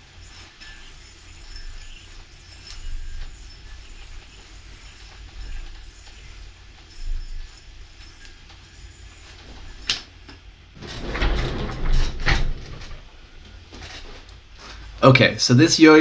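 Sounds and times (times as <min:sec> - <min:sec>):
yo-yo string hiss: 0:00.0 - 0:10.1.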